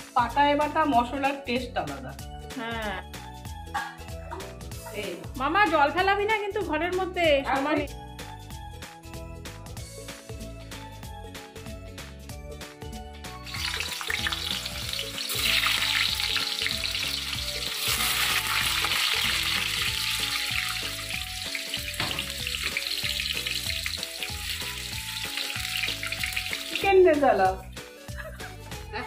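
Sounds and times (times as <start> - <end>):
background music: 0.0 - 29.0
potatoes sizzling in hot oil: 13.4 - 28.1.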